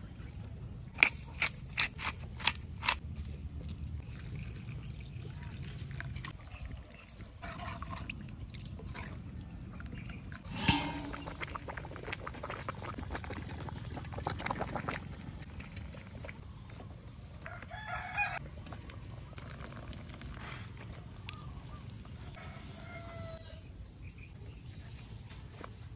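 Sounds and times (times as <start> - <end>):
rooster crowing: 17.5 - 18.4, 22.4 - 23.6.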